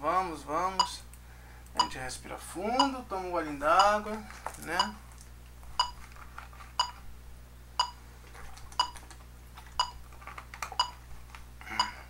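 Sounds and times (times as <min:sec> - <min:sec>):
metronome clicking: 0:04.8 - 0:05.0, 0:08.8 - 0:09.0.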